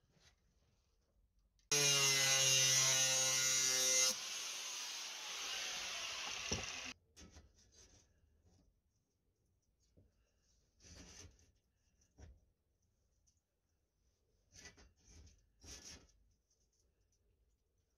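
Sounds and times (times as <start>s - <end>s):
angle grinder cutting steel: 1.7s - 7.0s.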